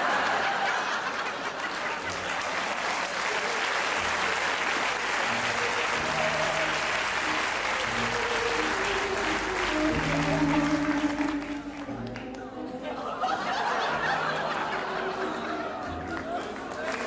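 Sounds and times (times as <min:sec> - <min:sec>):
audience applauding: 0:00.0 - 0:12.5, 0:13.2 - 0:17.0.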